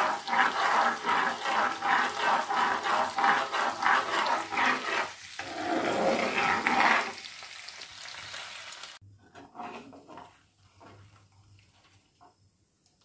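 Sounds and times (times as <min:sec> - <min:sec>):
spoon scraping a pan: 0:00.0 - 0:07.4, 0:09.2 - 0:12.1
butter sizzling in a pan: 0:00.0 - 0:12.5.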